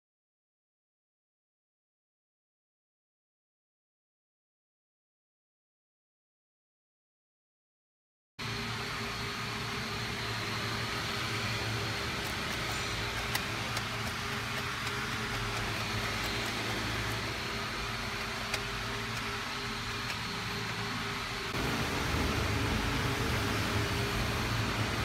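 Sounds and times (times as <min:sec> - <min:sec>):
background hum and hiss: 0:08.4 - 0:25.0.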